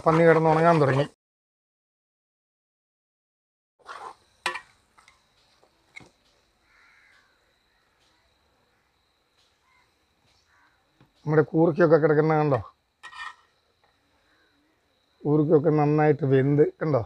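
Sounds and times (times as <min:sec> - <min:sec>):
crow cawing: 0:06.6 - 0:09.0, 0:09.6 - 0:10.9.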